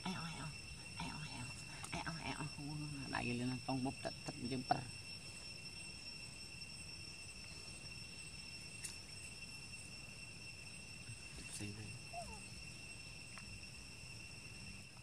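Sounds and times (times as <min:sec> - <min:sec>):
insect chorus: 0:00.0 - 0:15.0
faint squeak: 0:11.2 - 0:12.6.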